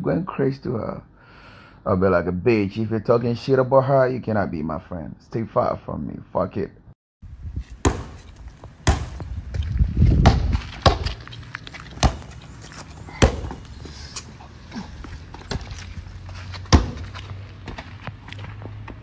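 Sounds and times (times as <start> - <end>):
ball thudding on pavement: 7.8 - 14.3, 15.0 - 19.0.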